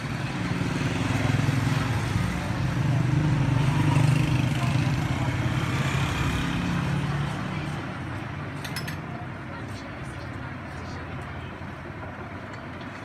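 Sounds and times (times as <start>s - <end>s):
small motorcycle engine running: 0.0s - 7.6s.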